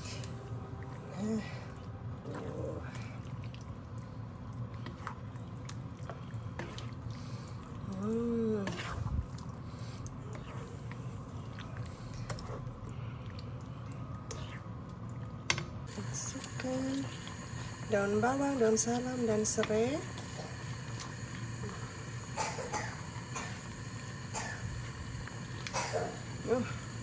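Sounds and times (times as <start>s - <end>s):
steady low hum: 0.0s - 27.0s
spatula scraping in a pan: 8.6s - 9.1s.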